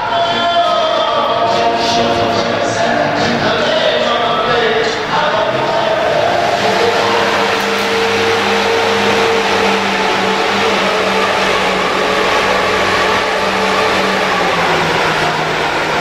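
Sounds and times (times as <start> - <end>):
engine humming with hiss: 4.1 - 16.0.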